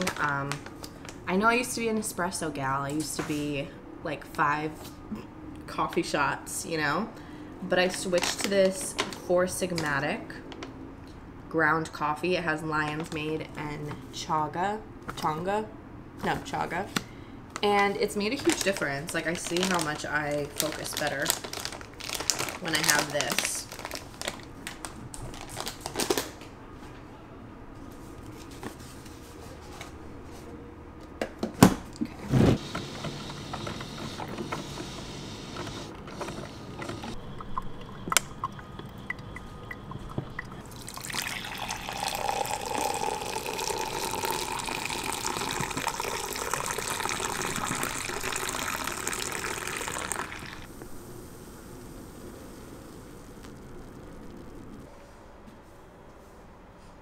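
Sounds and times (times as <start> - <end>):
paper coffee bag crinkling: 18.3 - 26.4
liquid pouring into a vessel: 37.2 - 50.7.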